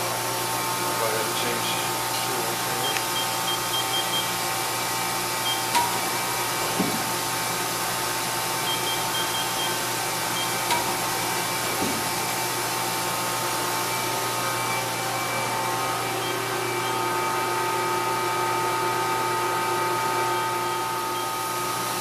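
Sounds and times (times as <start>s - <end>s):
machine hum: 0.0s - 22.0s
short high beeps: 2.8s - 4.3s, 8.7s - 9.8s.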